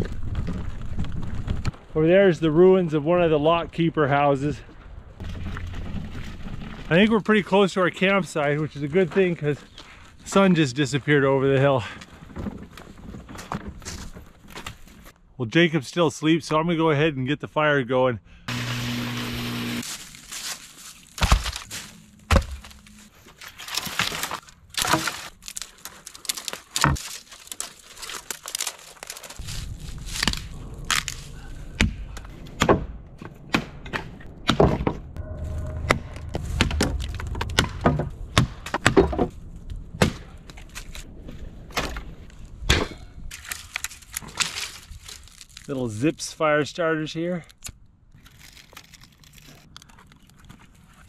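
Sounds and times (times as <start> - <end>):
low rumble: 4.6 - 7.2, 29.4 - 43.3
dry branches snapping: 19.8 - 31.5, 43.3 - 45.8, 47.5 - 50.3.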